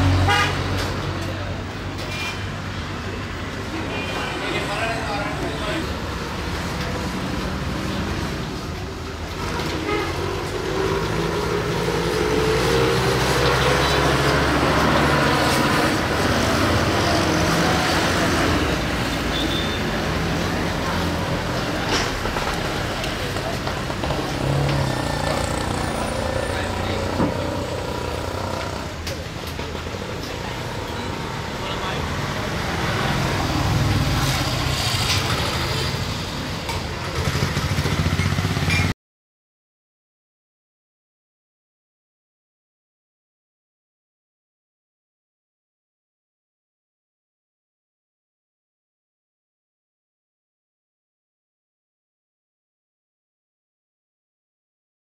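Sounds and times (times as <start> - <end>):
road traffic: 0.0 - 39.0
vehicle engine rumbling: 5.1 - 38.9.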